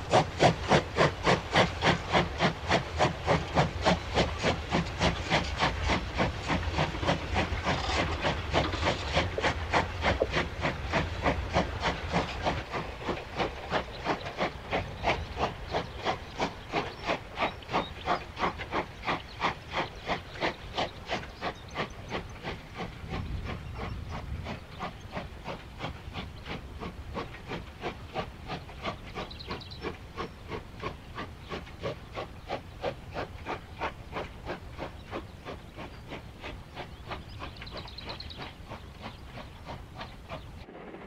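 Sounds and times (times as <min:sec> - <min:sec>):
steam locomotive chuffing: 0:00.0 - 0:41.0.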